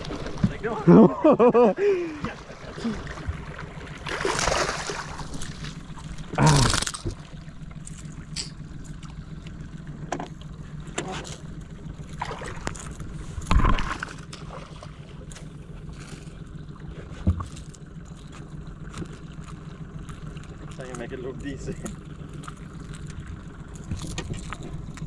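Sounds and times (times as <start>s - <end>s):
fish splashing in water: 0.0s - 0.9s, 2.2s - 9.9s, 11.4s - 20.9s
steady low hum: 0.0s - 25.0s.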